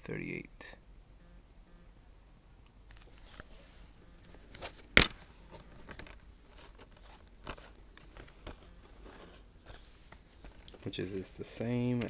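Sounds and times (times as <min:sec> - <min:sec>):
plastic case clicks and rustles: 0:04.3 - 0:12.0.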